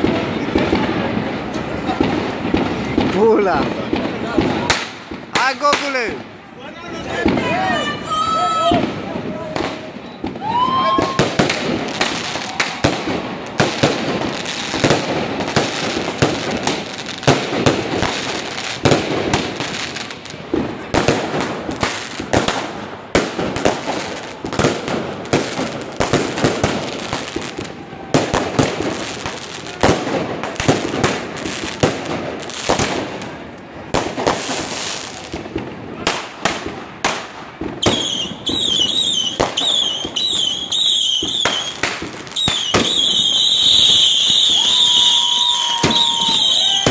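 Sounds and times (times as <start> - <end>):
firework bursts and crackle: 0.0 - 46.9
fireworks firing barrage: 0.0 - 46.9.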